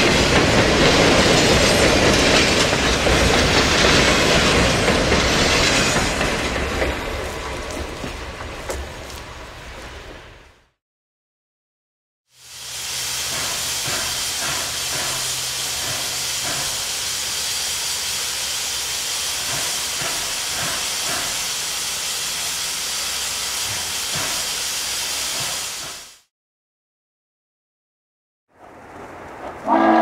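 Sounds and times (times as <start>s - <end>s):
steam hissing from locomotive: 12.3s - 26.3s.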